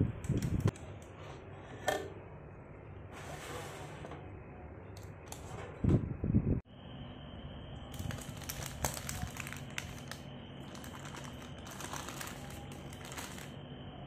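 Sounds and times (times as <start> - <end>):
low steady hum: 0.0 - 14.0
baking paper rustling: 7.9 - 13.6.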